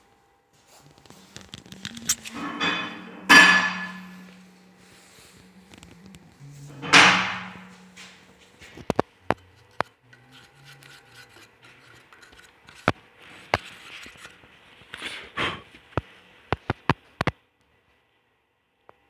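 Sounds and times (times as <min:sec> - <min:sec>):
wood scraping: 0:00.9 - 0:15.6.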